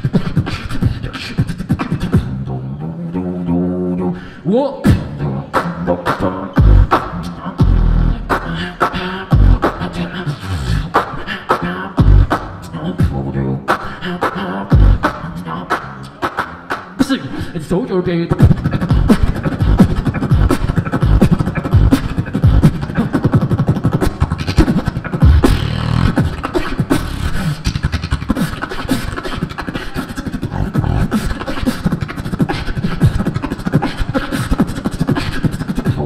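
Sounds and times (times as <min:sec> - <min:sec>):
beatboxing: 0:00.0 - 0:36.0.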